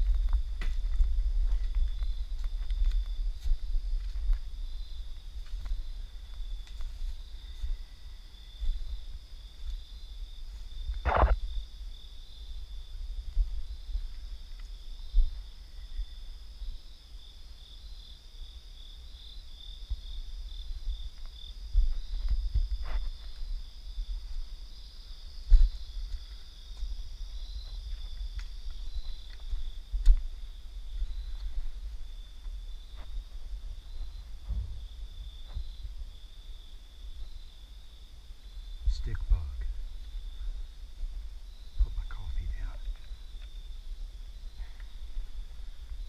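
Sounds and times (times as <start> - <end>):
crickets trilling: 0.0 - 46.0
night insects chorus: 0.0 - 46.0
microphone handling rumble: 10.8 - 11.7, 28.8 - 36.1
sharp thumps: 10.9 - 11.4.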